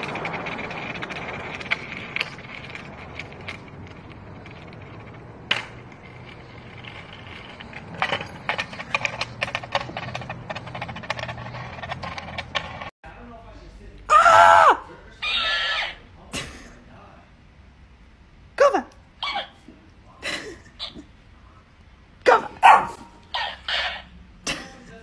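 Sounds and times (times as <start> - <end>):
skateboard clicks and rattles: 0.0 - 12.9
skateboard rolling over concrete: 0.0 - 12.9.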